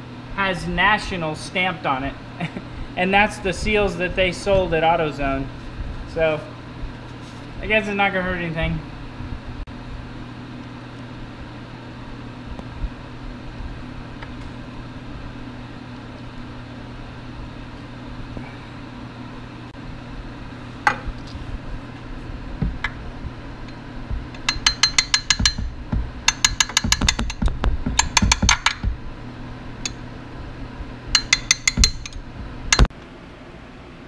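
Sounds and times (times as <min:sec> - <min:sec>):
low hum: 0:00.0 - 0:34.0
ratchet wrench clicking: 0:24.4 - 0:25.6.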